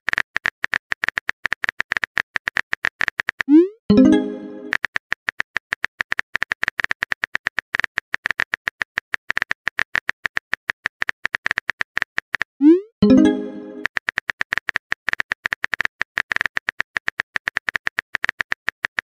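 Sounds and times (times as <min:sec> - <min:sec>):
message sent swoop tone: 0:12.6 - 0:13.9.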